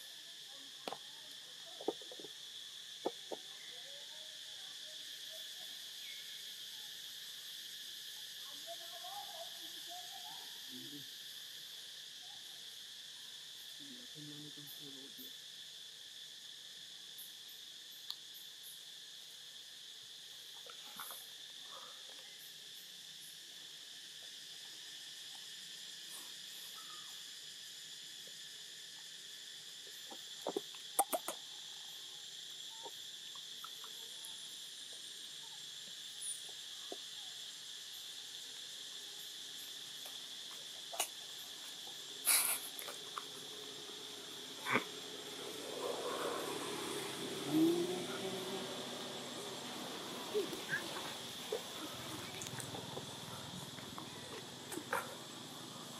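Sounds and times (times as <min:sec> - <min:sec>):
insects chorus: 0:00.0 - 0:55.9
faint wavering calls: 0:43.6 - 0:55.9.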